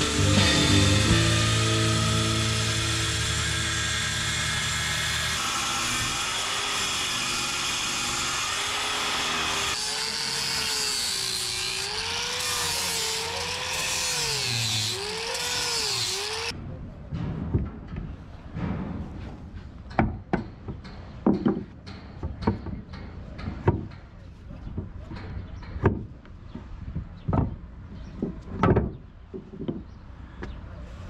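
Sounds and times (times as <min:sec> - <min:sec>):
power tool cutting wood: 0:00.0 - 0:16.5.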